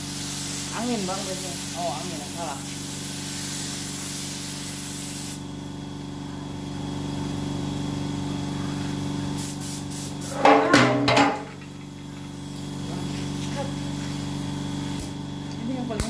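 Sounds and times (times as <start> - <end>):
paint spray gun hissing: 0.0 - 5.6, 8.3 - 10.5, 11.4 - 15.3
air compressor running: 0.0 - 16.0.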